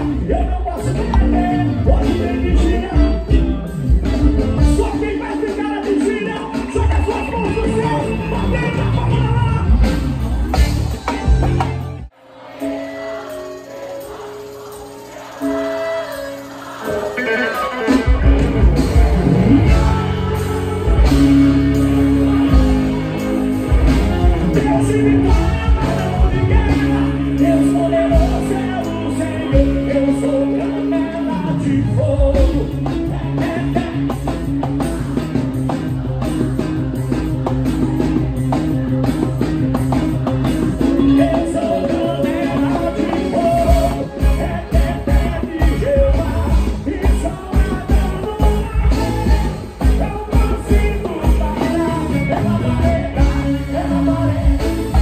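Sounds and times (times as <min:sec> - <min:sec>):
electric guitar: 0:00.0 - 0:55.0
live band playing: 0:00.0 - 0:55.0
person singing: 0:12.2 - 0:36.1, 0:40.2 - 0:55.0.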